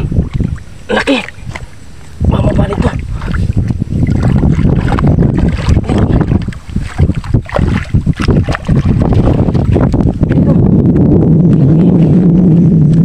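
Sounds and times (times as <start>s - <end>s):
handling rumble: 0.0s - 13.0s
wind noise on microphone: 0.0s - 13.0s
fish splashing in water: 2.9s - 10.3s.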